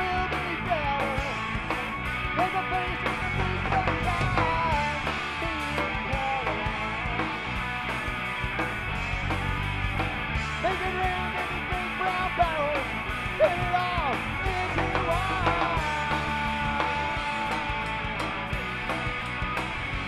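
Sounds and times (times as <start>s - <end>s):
electric guitar lead line bending: 0.0s - 20.0s
rock band playing: 0.0s - 20.0s.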